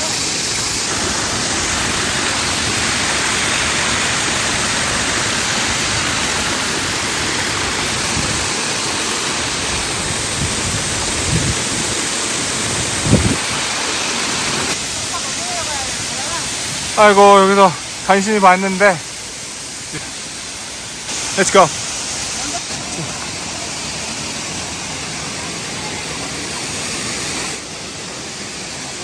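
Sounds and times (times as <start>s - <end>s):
water rushing down a creek: 0.0s - 29.0s.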